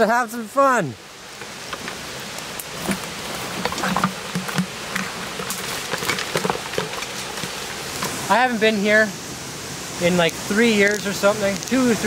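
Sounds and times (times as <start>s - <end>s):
twigs and leaves crackling underfoot: 1.3s - 8.3s, 10.6s - 12.0s.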